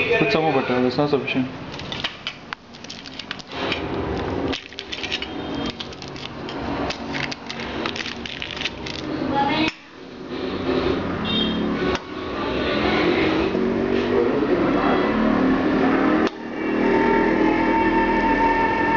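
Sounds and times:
paper wrapper crinkling: 0:01.7 - 0:09.2.

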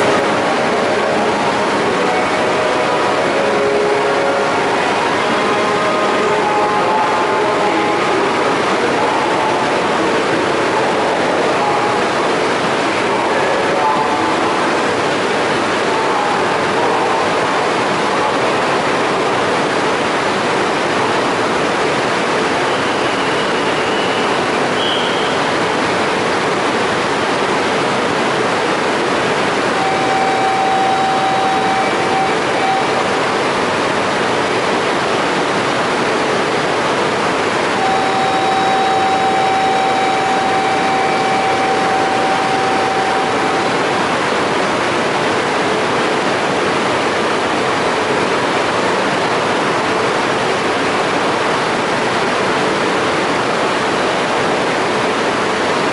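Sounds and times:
long steady tones: 0:00.0 - 0:19.8, 0:27.7 - 0:49.2
trains standing at platform: 0:00.0 - 0:55.9.

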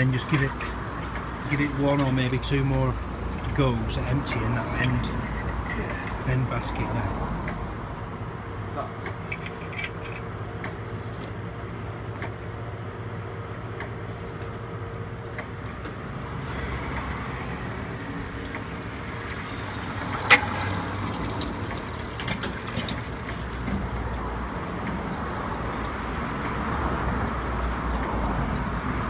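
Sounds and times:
suction hose drawing liquid: 0:18.5 - 0:24.0.

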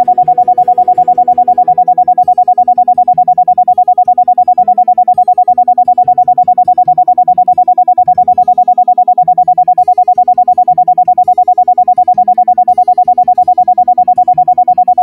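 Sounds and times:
pulsing isochronic tone: 0:00.0 - 0:15.0
soft keyboard music: 0:00.0 - 0:15.0.

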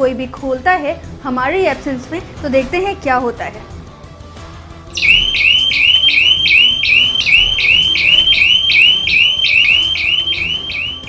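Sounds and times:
whooping alarm siren: 0:05.0 - 0:11.0.

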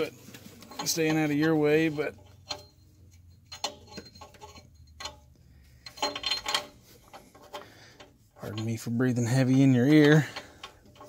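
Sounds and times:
tools clicking and tapping: 0:00.6 - 0:11.0
heavy breathing close to microphone: 0:06.8 - 0:08.3.

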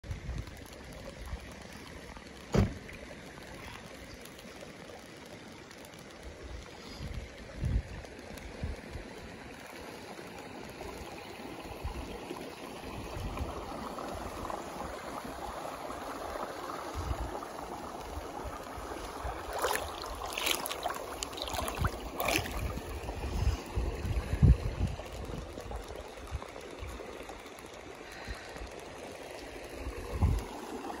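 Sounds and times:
water lapping and trickling: 0:00.0 - 0:31.0
water thumping against camera: 0:02.5 - 0:03.0, 0:19.5 - 0:23.0
sharp water splashes: 0:19.0 - 0:23.3.

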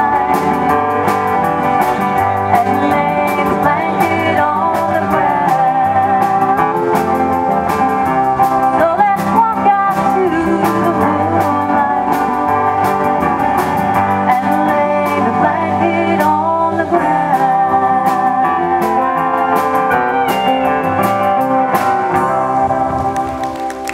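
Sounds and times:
steady drum beat: 0:00.0 - 0:15.2
strummed acoustic guitars: 0:00.0 - 0:23.7
electric lead guitar: 0:00.0 - 0:23.9.

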